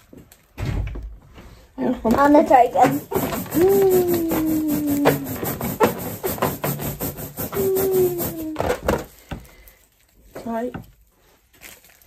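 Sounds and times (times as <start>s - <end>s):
balloon rubbing on hair: 2.4s - 9.1s.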